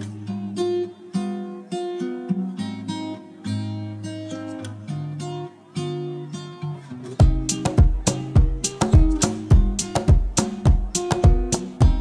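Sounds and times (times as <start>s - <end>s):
acoustic guitar chords: 0.0s - 12.0s.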